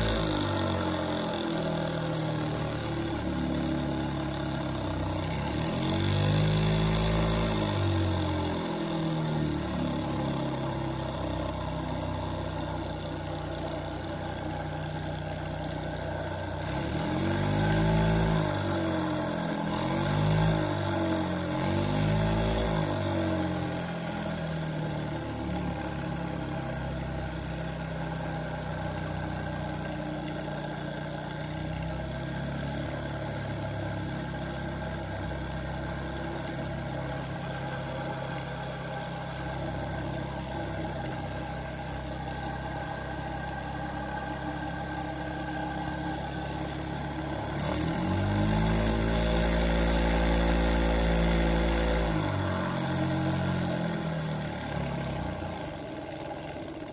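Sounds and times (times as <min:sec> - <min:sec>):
model steam engine running: 0:09.5 - 0:19.6, 0:23.2 - 0:56.9.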